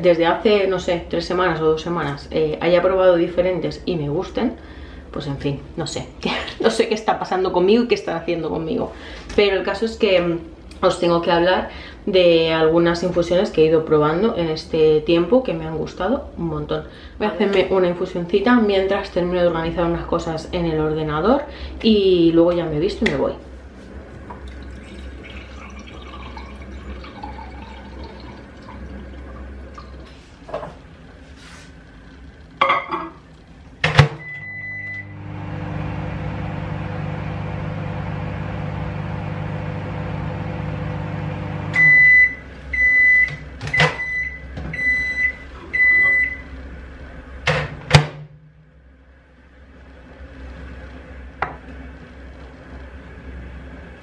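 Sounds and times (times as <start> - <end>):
microwave oven humming: 33.6 - 54.0
microwave beeps: 34.0 - 36.1, 41.5 - 46.6.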